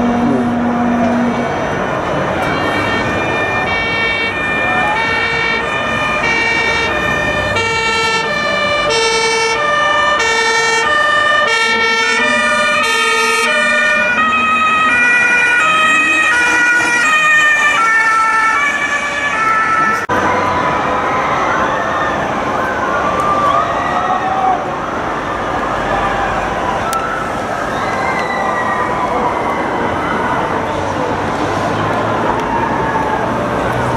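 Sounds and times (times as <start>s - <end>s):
road traffic noise: 0.0s - 33.9s
two-tone siren: 2.3s - 21.9s.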